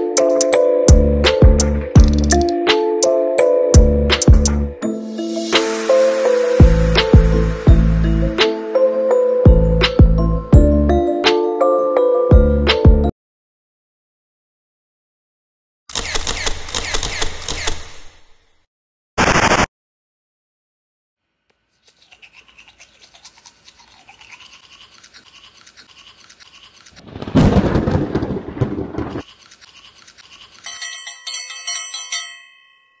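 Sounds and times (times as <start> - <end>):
loud low rush: 5.5 - 8.4
crackling fluttering texture: 26.3 - 30.2.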